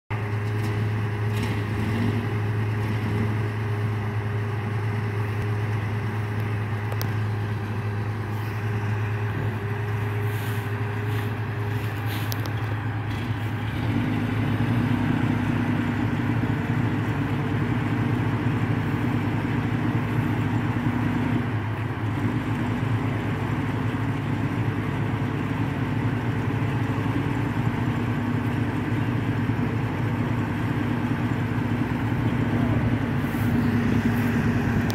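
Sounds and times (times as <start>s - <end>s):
truck engine running: 0.1s - 34.9s.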